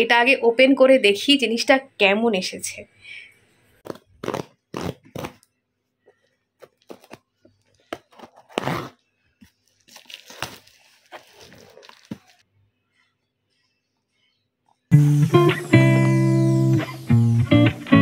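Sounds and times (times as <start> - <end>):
parcel tearing: 3.8 - 5.5, 7.9 - 12.4
wrapping crinkling: 6.6 - 12.4.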